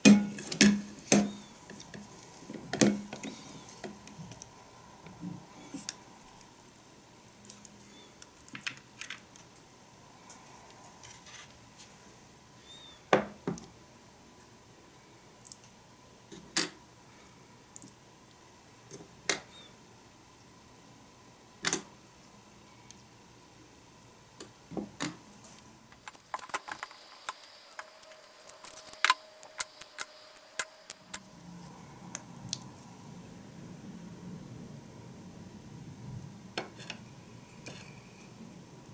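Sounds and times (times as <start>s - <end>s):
plastic parts clicking and knocking: 26.0s - 27.4s.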